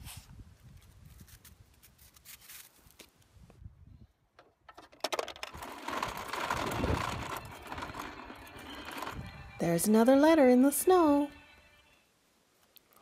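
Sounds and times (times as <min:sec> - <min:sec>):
toy rattling over asphalt: 0:04.4 - 0:11.4.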